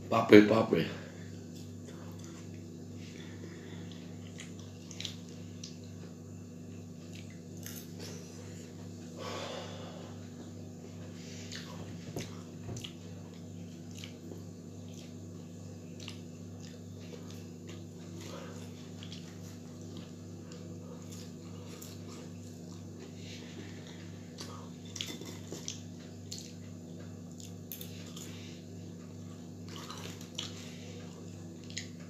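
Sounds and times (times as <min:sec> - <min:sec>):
steady low hum: 0:00.0 - 0:32.0
man chewing fries: 0:01.4 - 0:09.0, 0:10.8 - 0:32.0
breathing: 0:03.0 - 0:04.2, 0:09.2 - 0:10.3.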